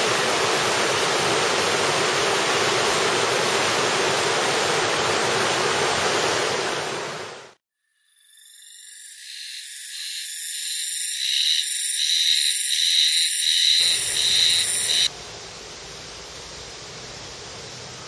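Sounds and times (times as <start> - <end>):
open-air rushing noise: 0.0 - 7.6, 13.8 - 18.0
high-pitched insect song: 7.8 - 18.0.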